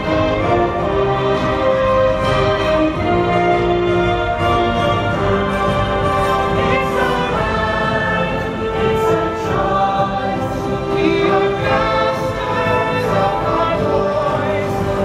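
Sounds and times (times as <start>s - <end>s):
orchestral show music: 0.0s - 15.0s
choir singing long held notes: 4.6s - 15.0s.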